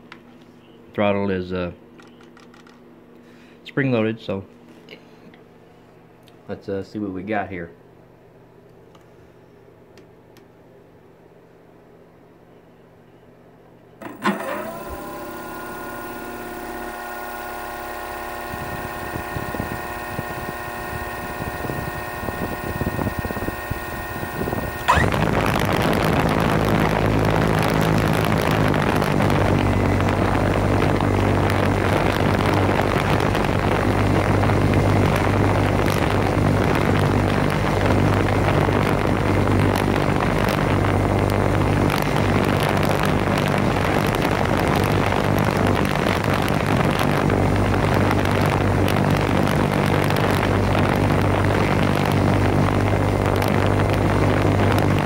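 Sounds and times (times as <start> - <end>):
electric motor whine: 14.0 - 55.0
propeller rushing drone: 17.7 - 44.8.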